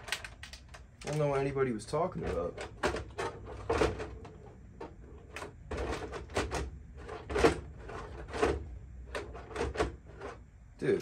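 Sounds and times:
plastic knocks and rattles: 2.2 - 10.4.

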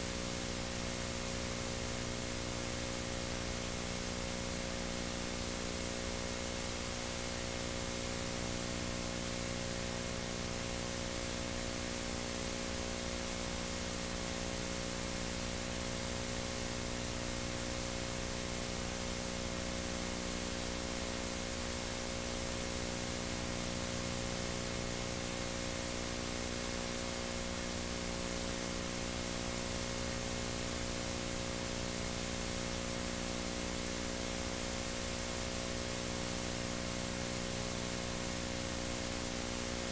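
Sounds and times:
low electrical hum: 0.0 - 39.9.

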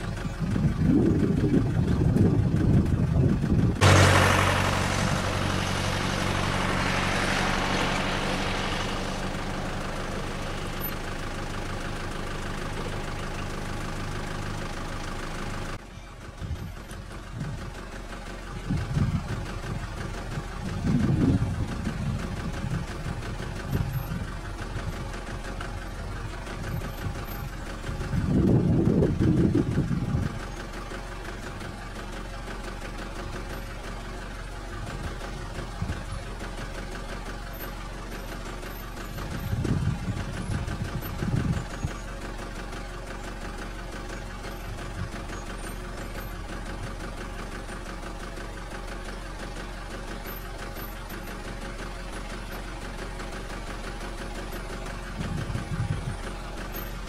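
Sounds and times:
short low rumbles: 0.0 - 11.0, 18.5 - 30.5, 54.7 - 57.0
vehicle engine idling: 0.0 - 57.0.

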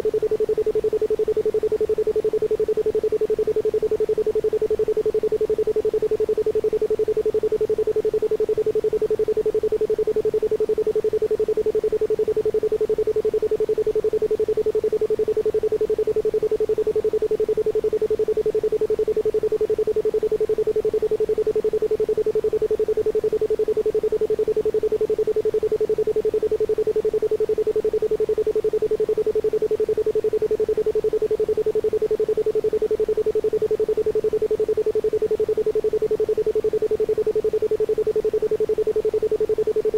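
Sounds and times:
pulsing pure tone: 0.0 - 39.9.

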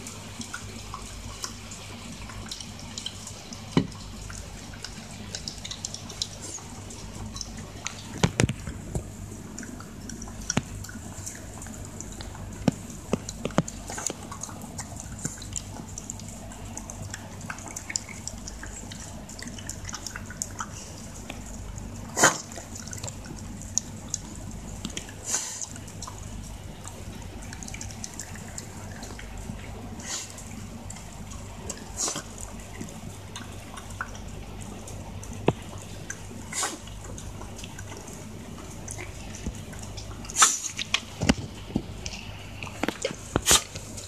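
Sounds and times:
dog eating wet food from bowl: 0.0 - 44.0.

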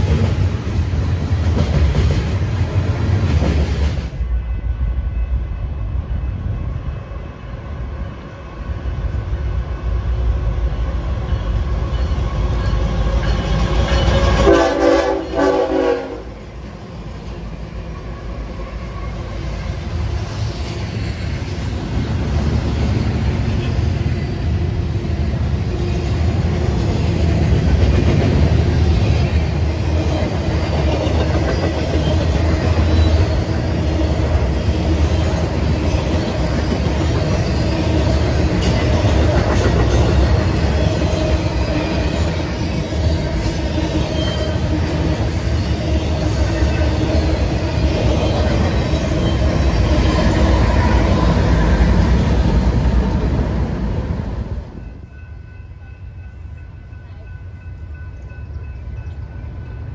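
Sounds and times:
train wheel clatter: 0.0 - 4.2, 26.4 - 50.6
train rumbling past: 0.0 - 59.9
locomotive horn blast: 14.4 - 16.4.

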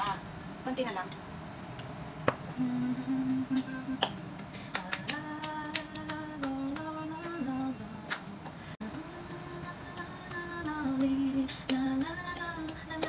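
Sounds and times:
hand claps: 3.6 - 7.4, 8.1 - 8.6, 9.3 - 13.0.

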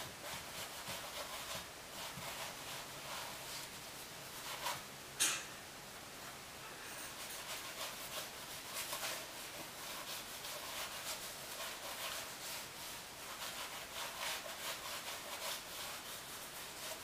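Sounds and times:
sponge scrubbing canvas: 0.0 - 4.9, 7.2 - 17.0.

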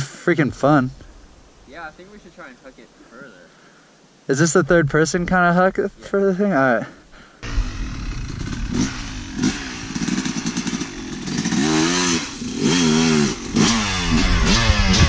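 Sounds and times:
dirt bike engine revving: 7.4 - 15.0.

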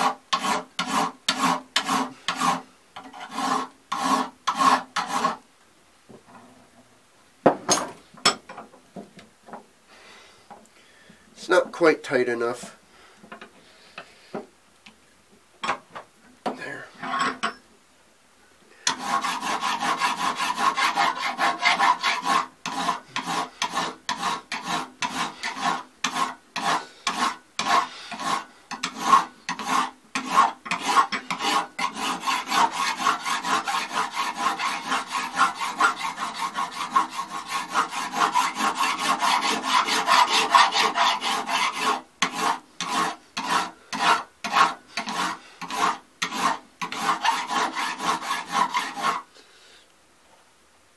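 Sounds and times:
hand file rasping on brass: 0.0 - 5.4, 18.8 - 49.3.

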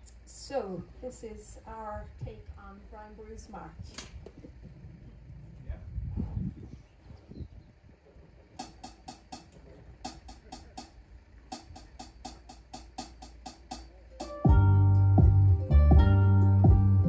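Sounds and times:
deep electric bass: 3.5 - 17.0
programmed percussion beat clicks: 8.6 - 17.0.

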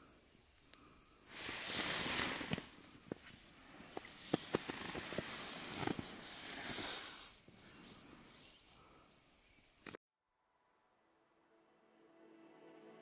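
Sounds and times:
wind gusts hissing: 0.0 - 9.7.

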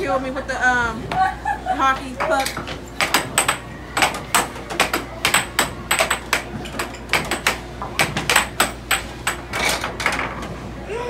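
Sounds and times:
air hockey puck and mallets clacking: 2.2 - 10.6.

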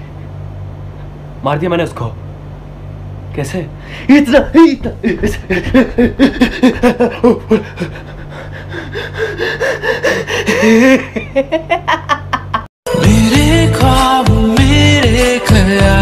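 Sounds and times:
person laughing hard: 4.9 - 12.7
gasping breaths: 7.6 - 10.9.

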